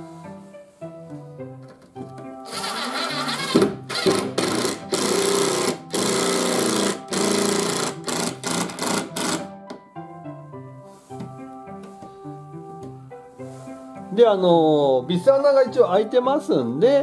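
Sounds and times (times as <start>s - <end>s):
impact driver driving screw into wood: 2.5s - 9.5s.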